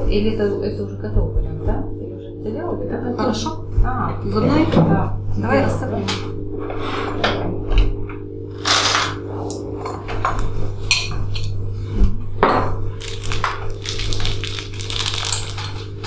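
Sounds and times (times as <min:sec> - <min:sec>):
spoons clinking on ceramic bowls: 0:10.8 - 0:11.5
plastic bag rustling: 0:12.9 - 0:16.0.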